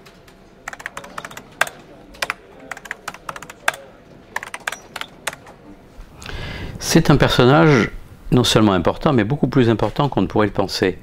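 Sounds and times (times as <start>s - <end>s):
keyboard key clicks: 0.7s - 3.8s, 4.4s - 5.4s.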